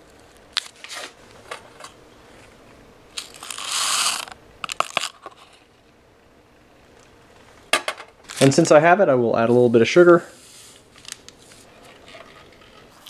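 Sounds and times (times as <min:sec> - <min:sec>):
foil sachet crinkling: 0:03.2 - 0:05.4.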